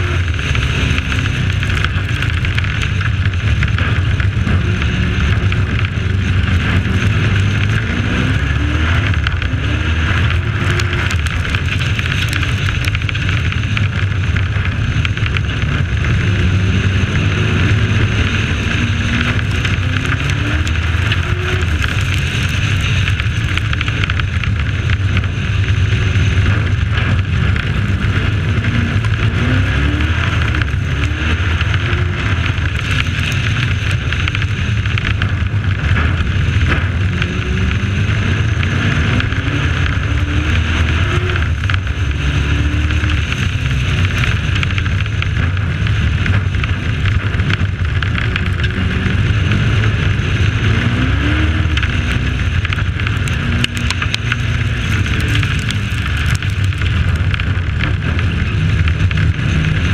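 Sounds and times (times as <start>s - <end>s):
wind and track noise: 0.0s - 59.9s.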